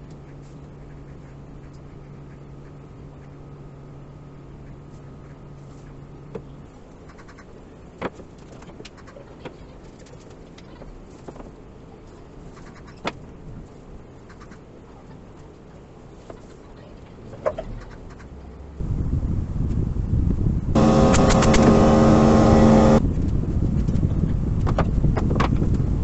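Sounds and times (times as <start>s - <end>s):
low hum: 18.3s - 23.2s.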